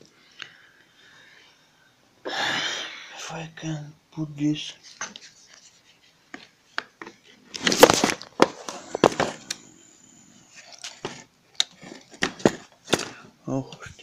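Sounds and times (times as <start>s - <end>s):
plastic parts clicking and knocking: 10.7s - 13.3s.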